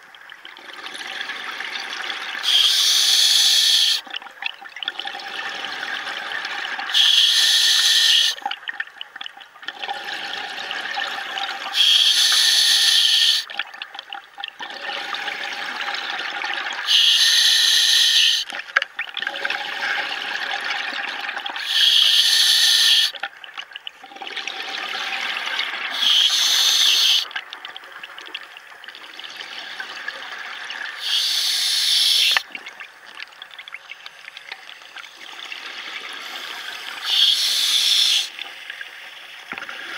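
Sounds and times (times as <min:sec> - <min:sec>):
hissing regulator inhalations: 0:02.4 - 0:04.0, 0:07.0 - 0:08.4, 0:11.7 - 0:13.5, 0:16.9 - 0:18.5, 0:21.6 - 0:23.1, 0:25.9 - 0:27.3, 0:31.0 - 0:32.4, 0:36.2 - 0:38.3
bubbling exhale: 0:25.9 - 0:27.2, 0:36.2 - 0:38.3.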